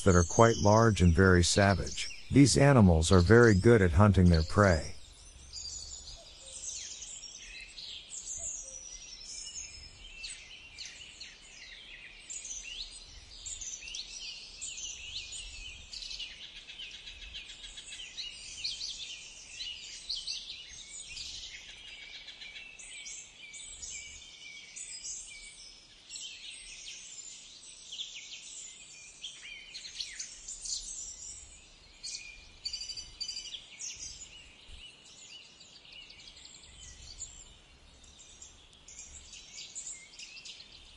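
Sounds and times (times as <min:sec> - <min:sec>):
birds chirping and singing: 0:00.0 - 0:06.2.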